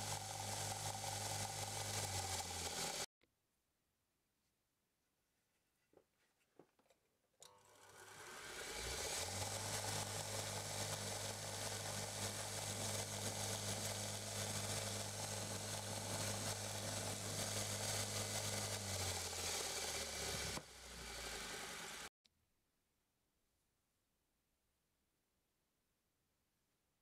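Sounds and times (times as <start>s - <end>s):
belt grinder motor humming: 0.0s - 3.1s, 7.4s - 22.1s
grinder belt hissing: 0.0s - 3.1s, 7.8s - 22.1s.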